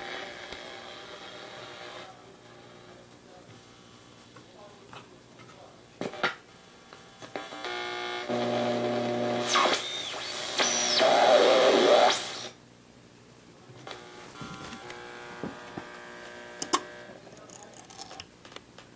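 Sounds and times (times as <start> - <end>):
radio hiss and static: 0.0 - 12.6, 13.6 - 17.8
radio tuning whistles and buzzing: 7.0 - 12.6, 13.9 - 17.1.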